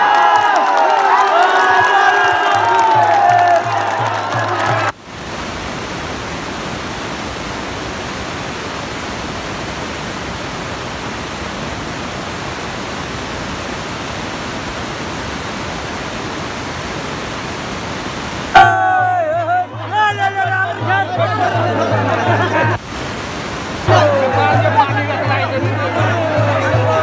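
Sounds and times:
static hiss: 5.0 - 18.6, 22.8 - 23.9.

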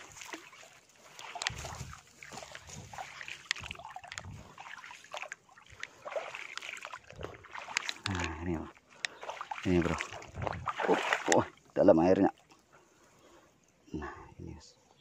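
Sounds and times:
footsteps sloshing through water: 0.0 - 13.7
sharp clicks: 7.6 - 8.4.

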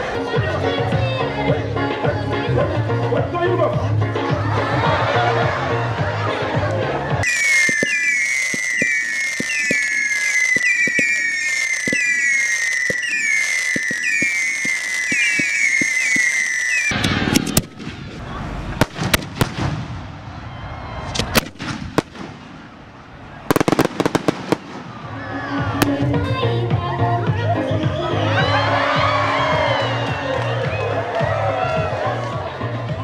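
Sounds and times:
firecracker bangs: 7.2 - 18.2, 18.8 - 25.2
whistling firework shots: 7.2 - 18.2, 18.8 - 22.8, 23.4 - 26.0.

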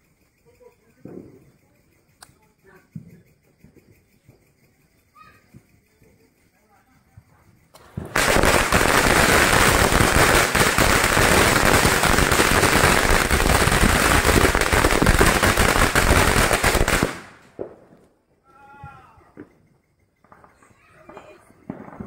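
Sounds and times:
firecracker string crackling: 0.0 - 18.4.

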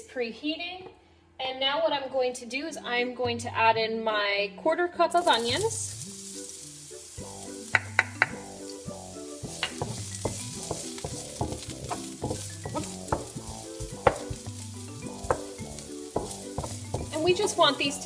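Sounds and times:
onions sizzling in oil: 5.2 - 18.0
wooden spatula scraping and knocking: 9.2 - 18.0.

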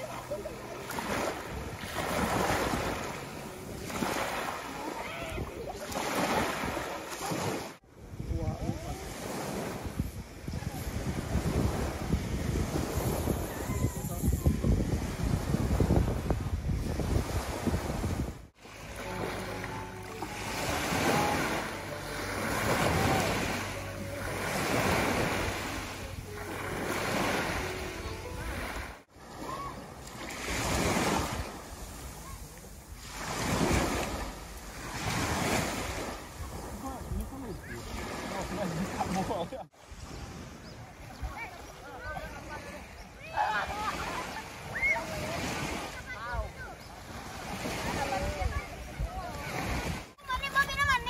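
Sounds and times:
small waves breaking on beach: 0.0 - 51.0
wind on microphone: 5.0 - 18.5.

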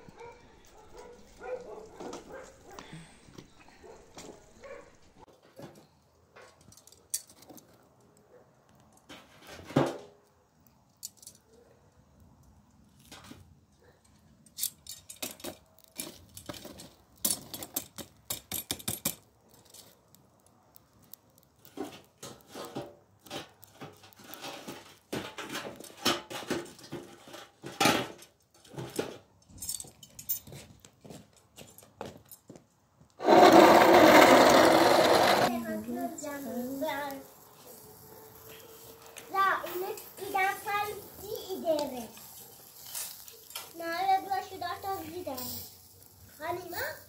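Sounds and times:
metal tongs raking charcoal: 14.4 - 30.5, 33.2 - 47.0.

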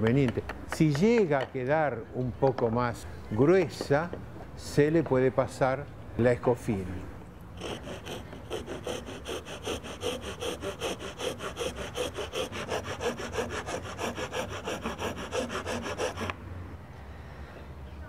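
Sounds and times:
wood rasp strokes on wood: 7.6 - 16.4.

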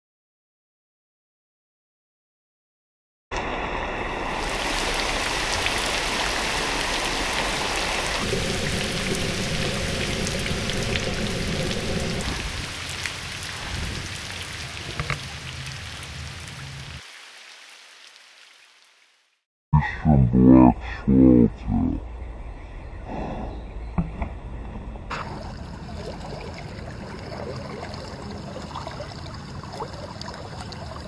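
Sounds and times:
rain falling on river: 4.4 - 19.4, 25.1 - 31.0.

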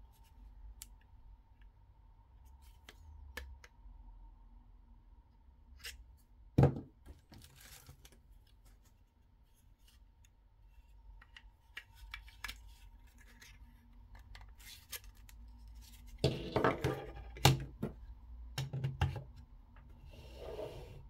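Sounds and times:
plastic knocking on wooden desk: 6.6 - 6.9.

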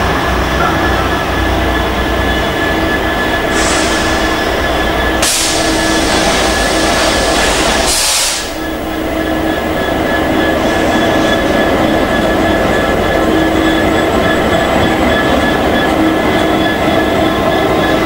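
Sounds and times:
locomotive engine rumble: 0.0 - 18.0
steady whine: 0.0 - 18.0
air brake hissing: 3.4 - 4.6, 5.2 - 8.7.

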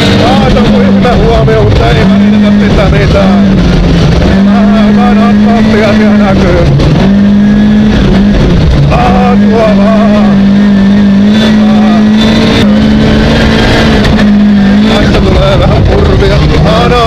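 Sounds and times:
rally car engine at high revs: 0.0 - 17.0.

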